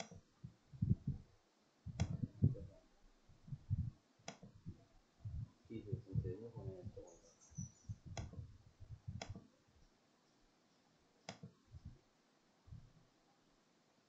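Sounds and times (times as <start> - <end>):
computer mouse clicks: 0.0 - 0.2, 1.9 - 2.3, 4.3 - 4.6, 7.6 - 8.4, 9.2 - 9.5, 11.3 - 11.6
faint low knocks: 0.0 - 1.3, 1.9 - 9.5.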